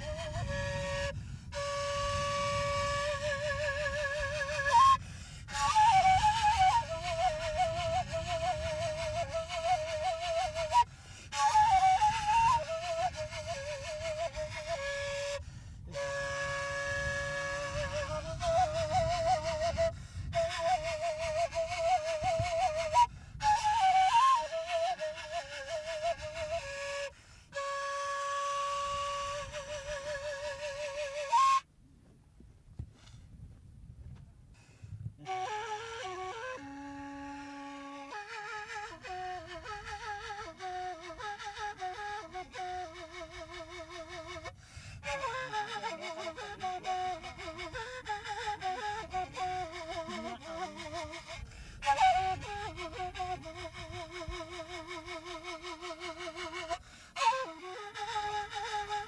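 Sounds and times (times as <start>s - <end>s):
solo flute melody: 0.0s - 31.8s, 34.6s - 59.0s.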